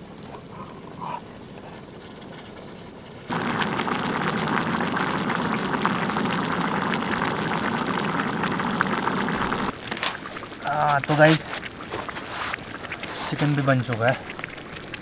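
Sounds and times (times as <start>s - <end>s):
curry bubbling and sizzling in pan: 3.3s - 15.0s.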